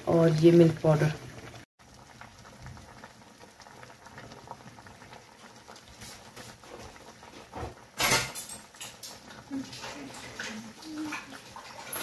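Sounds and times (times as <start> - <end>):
water crackling in a pot: 0.0 - 12.0.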